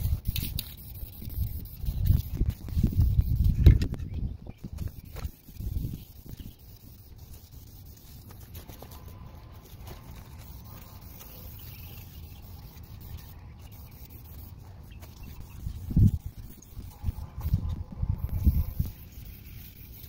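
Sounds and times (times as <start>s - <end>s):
aerosol spray can hissing: 5.0s - 20.0s.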